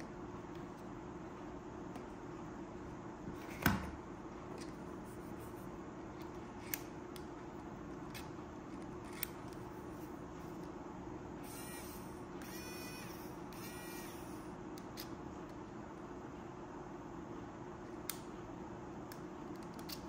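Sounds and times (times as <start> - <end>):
electric screwdriver motor whine: 11.4 - 14.5.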